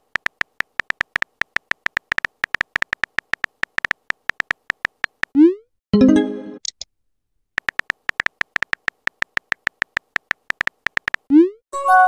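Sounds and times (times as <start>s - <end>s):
virtual keyboard tap clicks: 0.2s - 5.3s, 7.6s - 11.3s.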